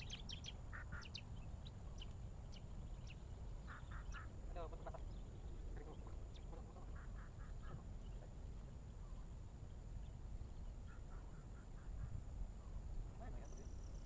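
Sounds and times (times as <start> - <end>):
steady low rumble: 0.0 - 14.0
duck-like quacking calls: 0.7 - 1.1, 3.7 - 5.0, 6.5 - 7.9.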